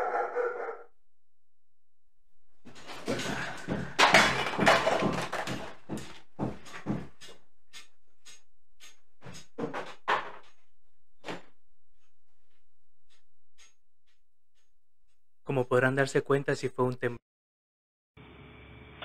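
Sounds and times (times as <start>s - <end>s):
clattering and thuds: 2.6s - 7.4s, 9.2s - 11.6s.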